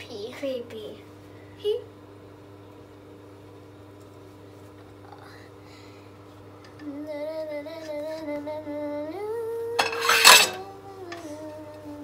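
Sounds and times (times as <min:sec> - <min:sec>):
person humming: 0:05.0 - 0:05.6, 0:06.8 - 0:12.0
spatula scraping frying pan: 0:09.8 - 0:10.6.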